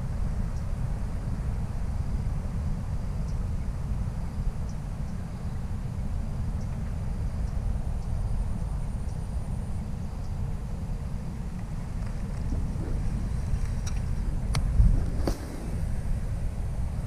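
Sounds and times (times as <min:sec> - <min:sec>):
wind buffeting microphone: 0:00.0 - 0:17.0
faint high ticks: 0:00.5 - 0:00.7, 0:11.6 - 0:15.5.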